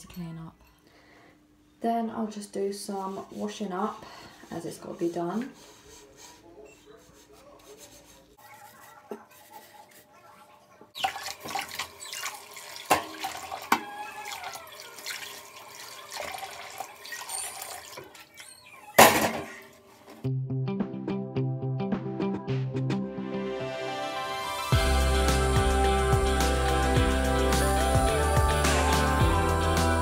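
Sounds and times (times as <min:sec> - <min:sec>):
tap water running: 0:11.0 - 0:18.6
dishes and pans clinking: 0:12.8 - 0:13.9
loud dish clatter: 0:19.0 - 0:19.6.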